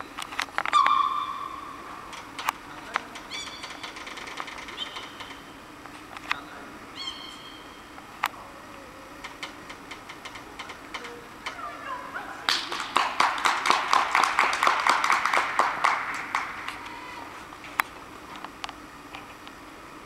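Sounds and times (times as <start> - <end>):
spectators applauding: 12.5 - 17.3.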